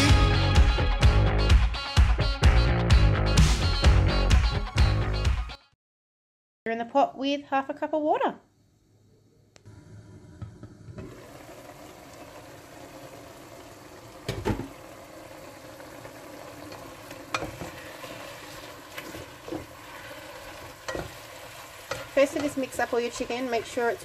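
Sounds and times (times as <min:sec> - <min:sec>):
chicken sizzling in oil: 0:11.0 - 0:24.0.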